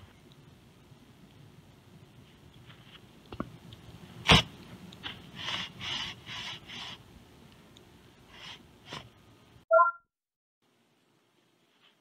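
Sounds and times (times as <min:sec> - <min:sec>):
three-note electronic beep: 0:09.7 - 0:10.0.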